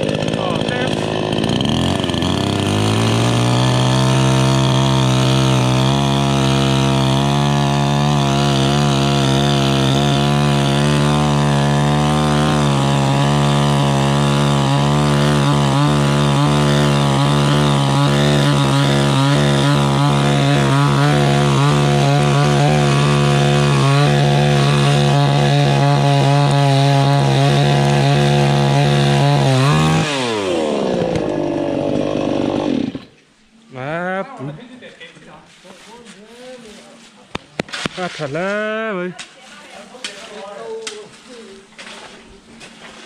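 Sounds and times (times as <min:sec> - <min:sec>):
chainsaw cutting wood: 0:00.0 - 0:33.2, 0:37.4 - 0:38.6.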